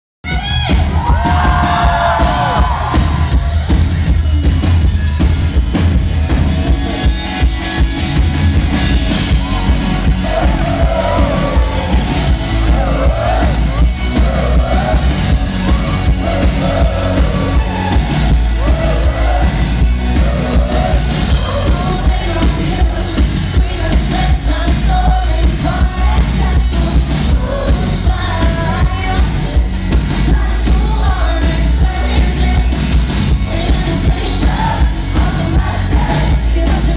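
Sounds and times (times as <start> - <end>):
heavy bass: 0.2 - 36.9
pop-rock band playing: 0.2 - 36.9
pounding drums: 0.6 - 28.6
woman singing: 20.2 - 36.9.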